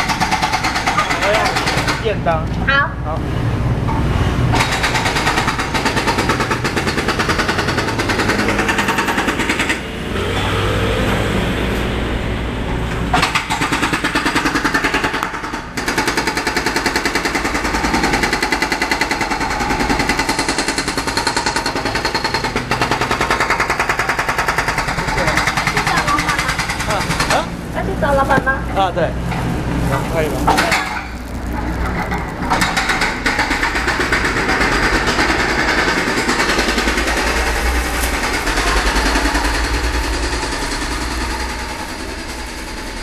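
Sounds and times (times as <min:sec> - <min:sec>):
machinery hammering rapidly: 0:00.0 - 0:02.2, 0:04.5 - 0:09.9, 0:13.2 - 0:27.6, 0:29.1 - 0:43.0.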